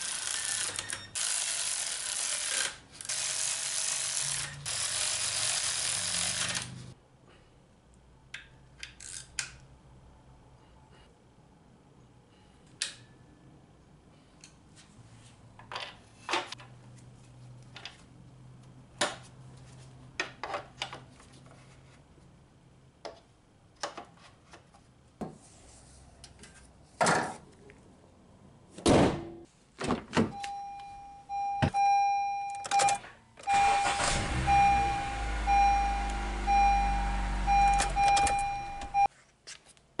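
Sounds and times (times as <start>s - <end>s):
pulsing car warning chime: 30.4s - 39.1s.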